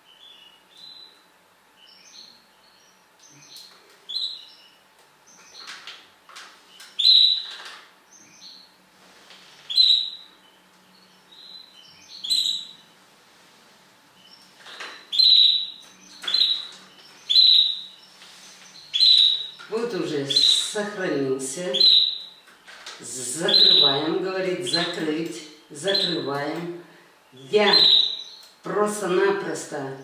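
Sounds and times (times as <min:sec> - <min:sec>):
songbird chirping: 0:09.5 - 0:13.0, 0:14.1 - 0:26.6, 0:27.2 - 0:30.0.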